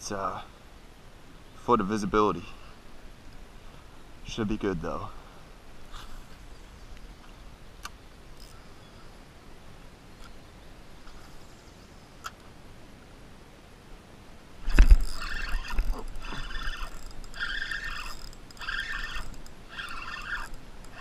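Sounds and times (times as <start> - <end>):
fishing reel whirring: 8.4 - 8.7, 14.6 - 21.0.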